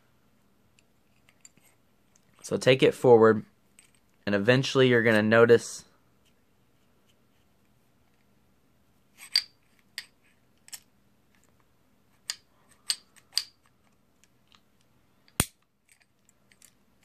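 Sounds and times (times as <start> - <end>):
pistol slide metallic clicks: 15.3 - 15.6.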